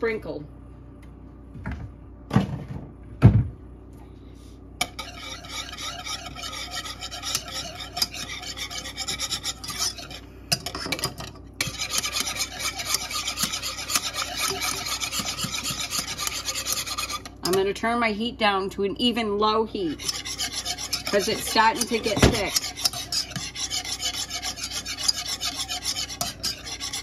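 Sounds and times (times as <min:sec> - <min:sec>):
whisk scraping metal saucepan: 0:04.8 - 0:18.0, 0:19.6 - 0:27.0.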